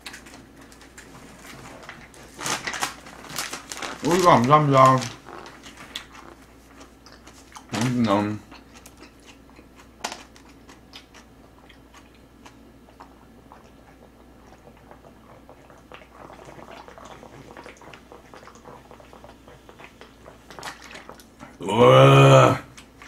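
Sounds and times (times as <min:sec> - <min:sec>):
chewing and swallowing: 0:05.1 - 0:07.8, 0:08.4 - 0:21.6
person gulping a drink: 0:11.6 - 0:23.0.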